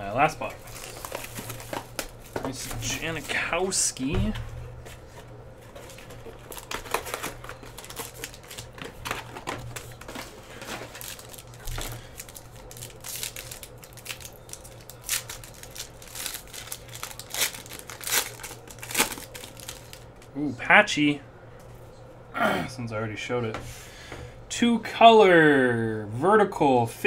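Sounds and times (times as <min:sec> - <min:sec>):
foil wrapper crinkling and tearing: 0:00.1 - 0:03.5, 0:05.7 - 0:20.3.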